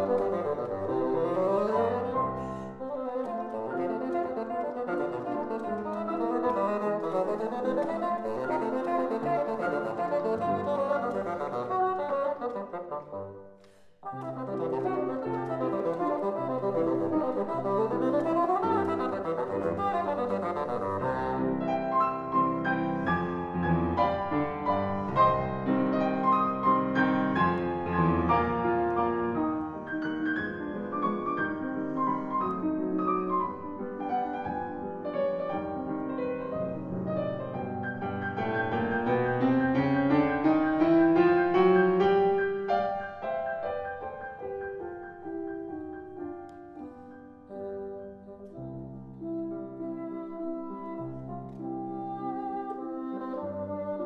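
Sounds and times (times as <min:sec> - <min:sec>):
bassoon playing: 0:00.0 - 0:13.4, 0:14.0 - 0:29.8, 0:46.9 - 0:54.0
grand piano playing: 0:00.0 - 0:54.0.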